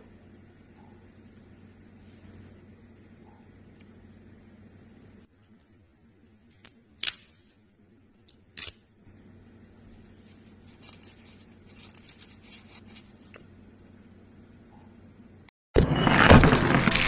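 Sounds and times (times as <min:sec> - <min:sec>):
film peeling and crackling: 0:16.2 - 0:17.0.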